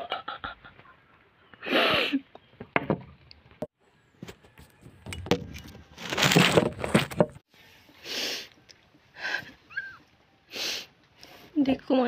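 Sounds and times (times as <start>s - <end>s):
woman sniffing while crying: 8.0s - 8.5s, 10.5s - 11.0s.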